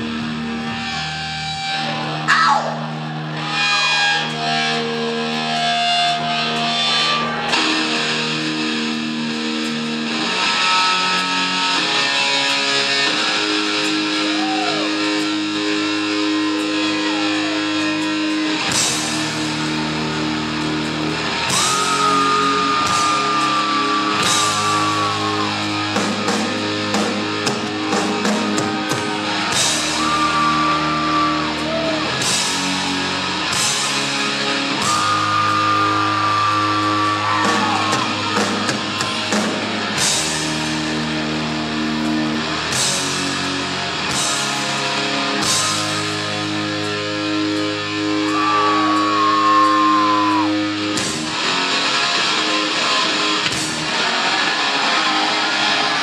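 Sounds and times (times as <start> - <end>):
heavy rock band playing: 0.0 - 56.0
high held guitar notes: 0.0 - 56.0.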